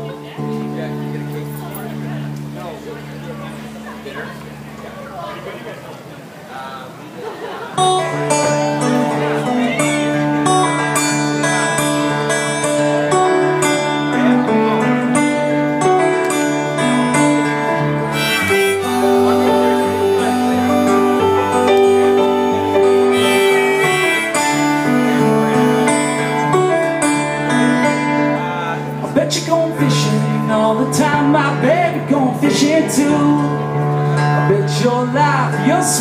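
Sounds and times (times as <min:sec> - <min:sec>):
live blues band playing: 0:00.0 - 0:05.4, 0:07.8 - 0:36.0
melodic lead: 0:07.9 - 0:29.1.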